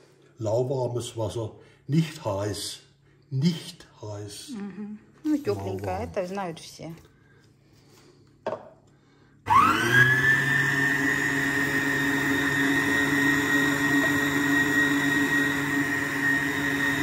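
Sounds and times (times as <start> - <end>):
stand mixer motor whine: 9.5 - 17.0.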